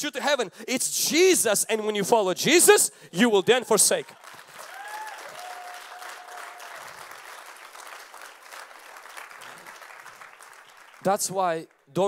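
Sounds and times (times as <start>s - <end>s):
crowd clapping: 3.8s - 11.9s.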